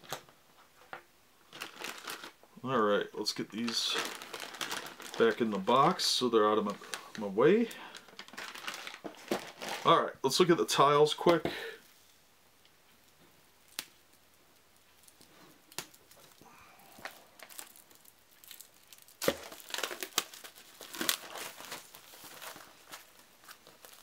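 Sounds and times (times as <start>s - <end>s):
plastic wrapping crinkling: 1.5s - 2.4s, 3.2s - 10.0s, 13.1s - 24.0s.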